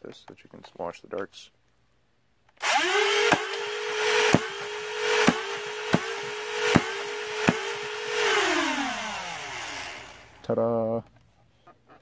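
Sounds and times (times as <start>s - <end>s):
flywheel motors whining: 2.6s - 10.4s.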